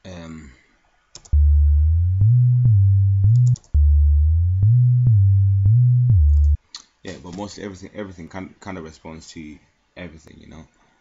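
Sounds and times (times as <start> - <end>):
synth bass line gliding: 1.3 - 6.6.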